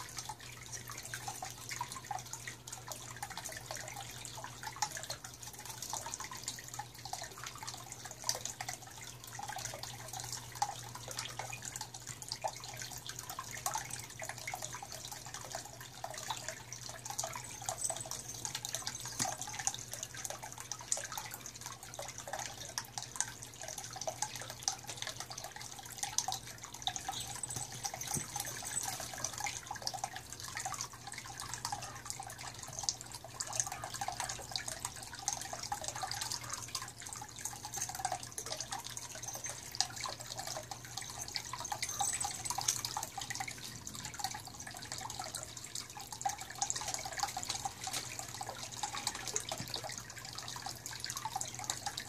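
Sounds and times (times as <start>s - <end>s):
fountain water trickling: 0.0s - 52.0s
patter of drips: 0.0s - 52.0s.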